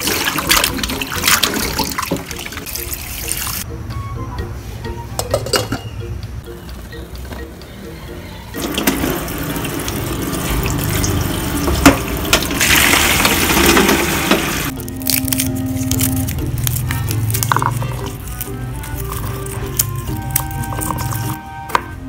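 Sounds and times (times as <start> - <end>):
tap water splashing: 0.0 - 2.6, 10.6 - 12.6.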